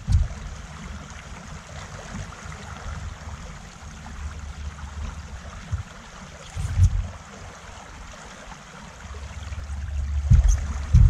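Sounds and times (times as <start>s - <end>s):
low knock on boat: 0.0s - 0.6s, 5.0s - 6.0s, 6.6s - 7.1s, 9.6s - 11.0s.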